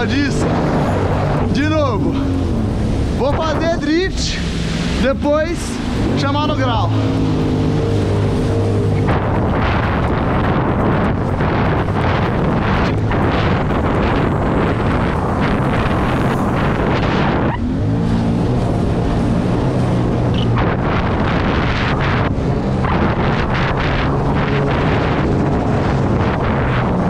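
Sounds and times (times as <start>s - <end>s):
jet ski engine running: 0.0s - 27.0s
wind buffeting microphone: 0.0s - 27.0s.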